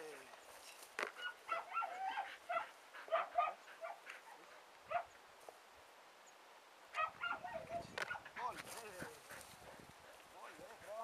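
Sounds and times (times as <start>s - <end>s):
dog yipping and barking: 1.2s - 5.1s, 7.0s - 8.3s.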